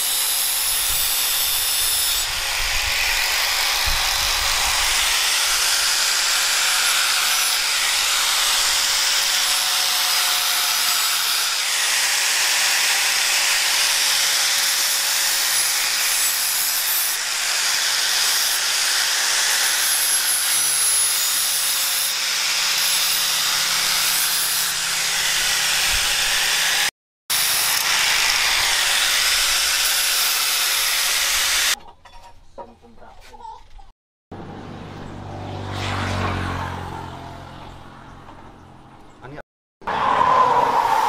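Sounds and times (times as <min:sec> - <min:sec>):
angle grinder grinding steel: 0:00.0 - 0:31.8.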